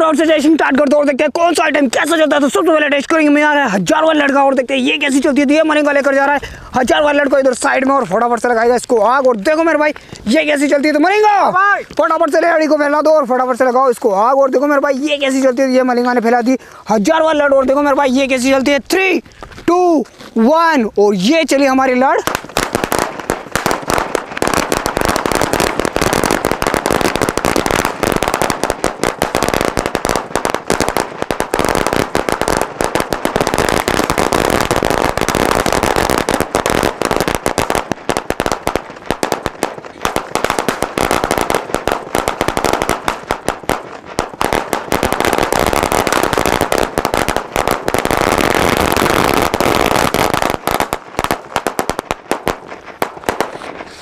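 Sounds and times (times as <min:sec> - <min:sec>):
firecracker string bangs: 0:22.3 - 0:53.8.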